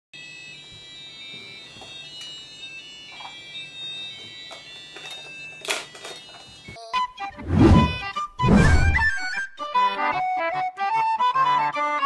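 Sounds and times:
electronic alarm clocks beeping: 0:00.2 - 0:06.7.

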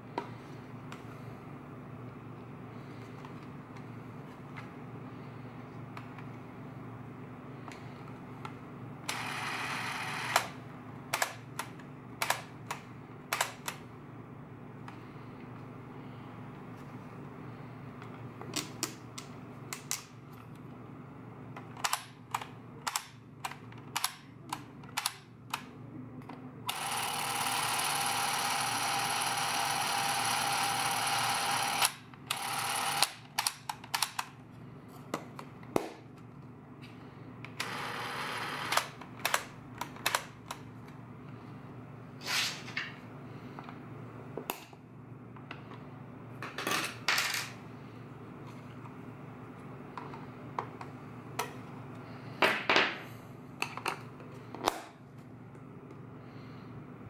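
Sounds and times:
film camera motor running: 0:09.1 - 0:10.5, 0:26.7 - 0:33.2, 0:37.6 - 0:38.9.

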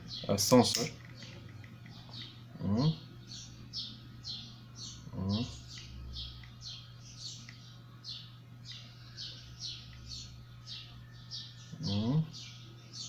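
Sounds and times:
low steady hum: 0:00.0 - 0:13.0
small bird chirping: 0:00.0 - 0:13.0
man humming: 0:02.6 - 0:03.0, 0:05.1 - 0:05.6, 0:11.8 - 0:12.3.

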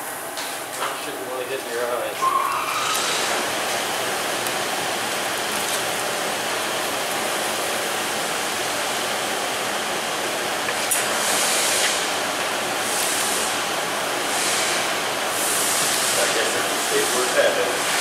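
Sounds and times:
steady rushing hiss: 0:10.5 - 0:18.0.

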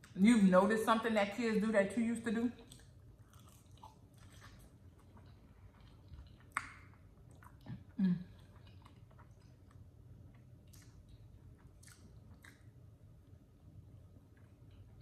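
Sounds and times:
wet chewing: 0:02.6 - 0:12.8
low voice hum: 0:07.7 - 0:08.4.

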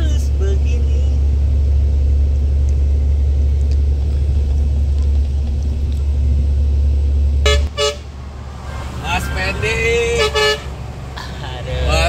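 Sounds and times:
truck engine and road drone: 0:00.0 - 0:12.0
vehicle horn toot: 0:07.4 - 0:08.1, 0:08.8 - 0:10.8.

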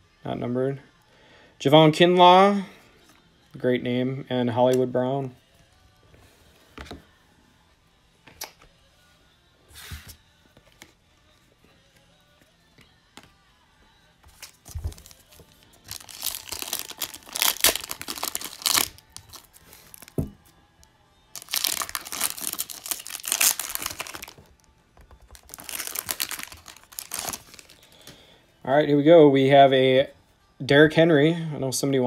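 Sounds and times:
foil wrappers crinkling and tearing: 0:14.4 - 0:20.2, 0:21.4 - 0:24.7, 0:25.3 - 0:28.1.

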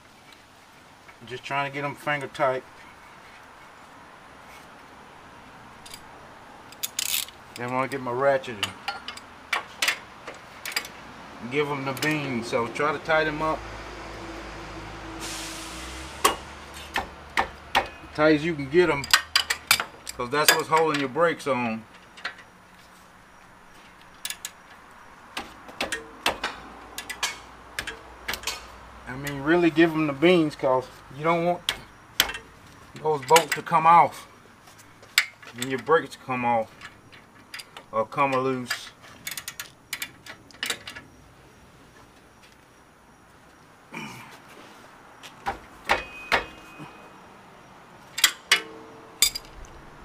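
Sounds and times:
metal hand tools clinking: 0:06.7 - 0:10.0, 0:18.8 - 0:21.2, 0:48.1 - 0:49.7.

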